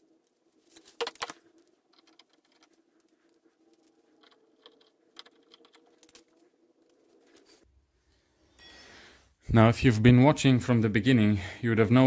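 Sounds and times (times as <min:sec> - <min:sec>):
metal parts clicking and clinking: 0:00.6 - 0:07.6.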